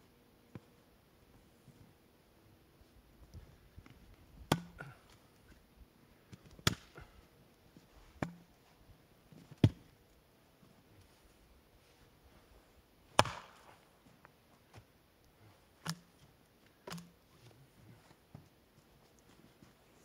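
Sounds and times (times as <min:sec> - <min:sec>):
axe splitting firewood: 0:04.5 - 0:05.0, 0:06.4 - 0:07.1, 0:13.2 - 0:13.7, 0:16.8 - 0:17.2.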